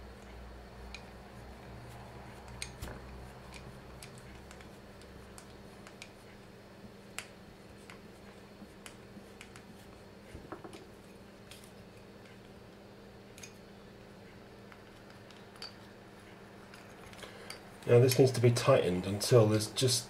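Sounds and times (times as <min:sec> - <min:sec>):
knock: 0:10.5 - 0:10.8.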